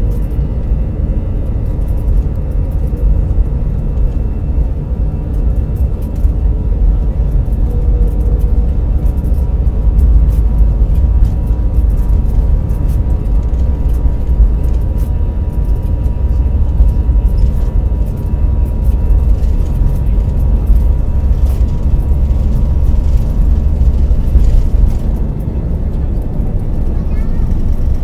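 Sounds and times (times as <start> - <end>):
jet engine rumble with whine: 0.0 - 28.0
wheels knocking and rattling: 7.4 - 28.0.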